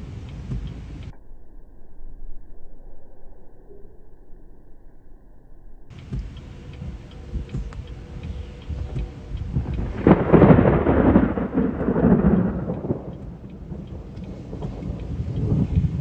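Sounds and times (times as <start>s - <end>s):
thunder rumbling and pealing: 5.9s - 16.0s.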